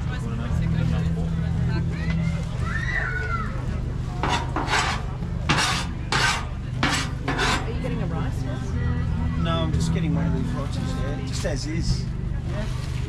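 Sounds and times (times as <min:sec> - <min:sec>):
steady low hum: 0:03.9 - 0:09.4
metal utensil scraping griddle: 0:04.1 - 0:08.1.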